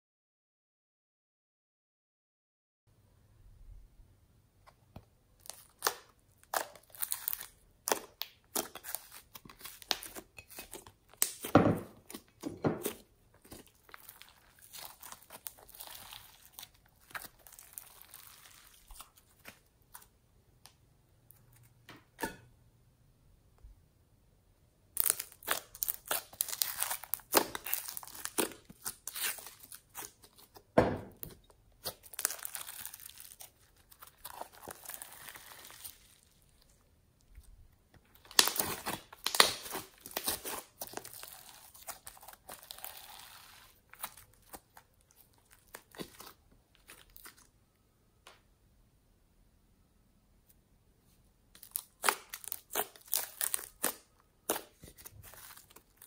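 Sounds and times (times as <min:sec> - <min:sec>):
slime clicking and crackling: 0:05.4 - 0:11.5, 0:12.1 - 0:20.1, 0:25.0 - 0:30.6, 0:31.8 - 0:36.4, 0:38.1 - 0:47.5, 0:51.6 - 0:56.0.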